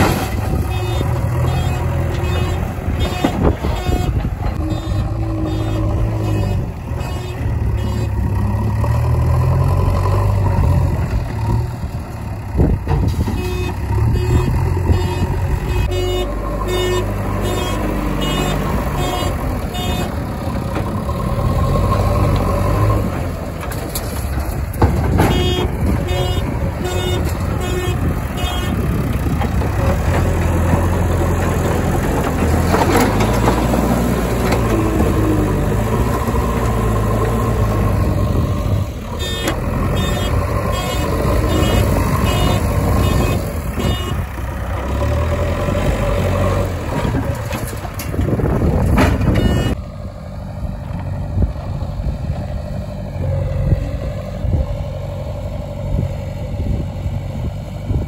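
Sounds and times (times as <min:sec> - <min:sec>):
heavy diesel engines running: 0:00.0 - 0:58.0
reversing alarm beeping: 0:49.4 - 0:49.8.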